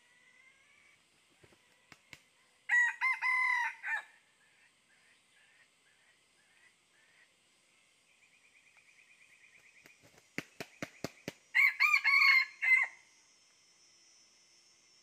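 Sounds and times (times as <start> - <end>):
rooster crowing: 2.7 - 4.1, 11.5 - 13.0
rooster wings beating: 9.8 - 11.5.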